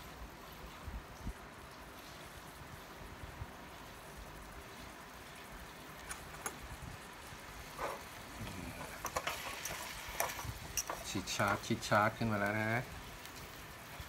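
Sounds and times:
steak sizzling in a tin: 0:05.8 - 0:14.0.

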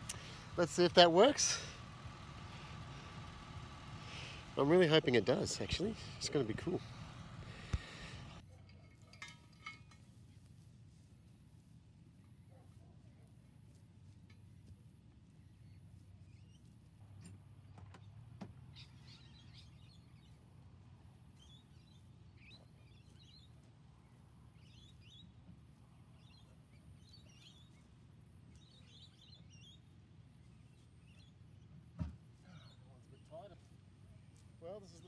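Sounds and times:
birds chirping: 0:00.0 - 0:08.4, 0:21.2 - 0:31.7
low background rumble: 0:00.0 - 0:08.4.

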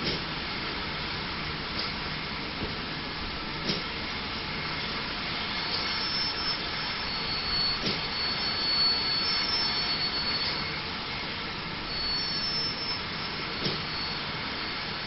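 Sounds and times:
steam hissing from locomotive: 0:00.0 - 0:15.0
faint high thin tones: 0:05.8 - 0:10.8, 0:11.9 - 0:14.9.

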